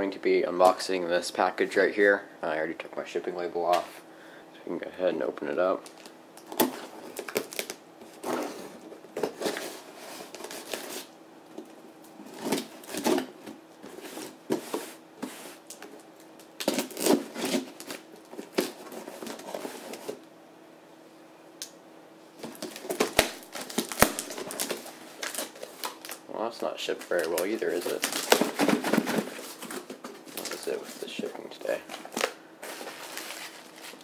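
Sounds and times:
cardboard scraping: 6.5 - 11.1, 27.2 - 34.0
tape tearing: 15.6 - 20.1, 22.4 - 26.2, 27.1 - 34.0.

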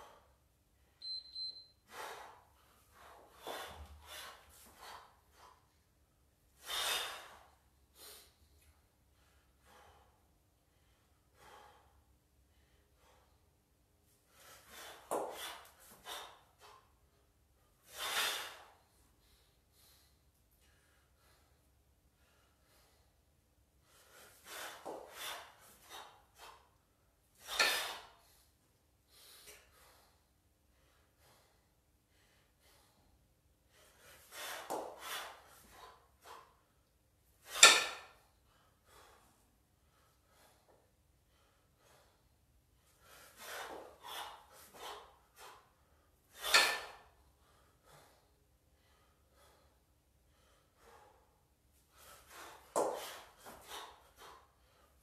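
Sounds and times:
loud sharp exhale: 6.6 - 8.3, 17.9 - 18.8, 27.4 - 28.2, 46.4 - 47.0
person breathing hard: 37.6 - 55.0.

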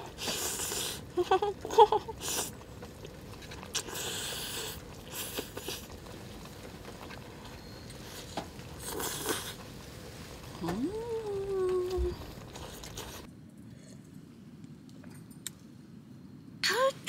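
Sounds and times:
person slurping noodles: 0.0 - 1.1, 3.6 - 6.0, 8.8 - 9.6
person chewing: 2.2 - 6.0, 8.8 - 9.6, 12.3 - 13.3.

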